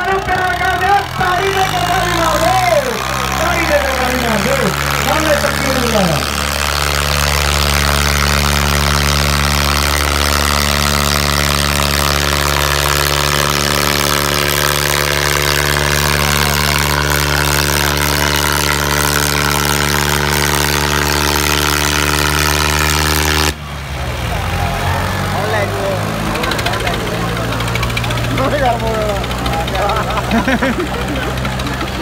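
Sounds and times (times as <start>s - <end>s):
tractor diesel engines under load: 0.0s - 32.0s.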